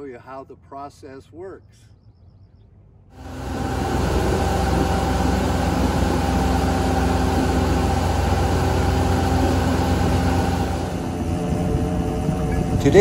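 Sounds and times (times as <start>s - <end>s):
water rushing in wake: 3.2s - 11.3s
motorboat engine: 3.2s - 13.0s.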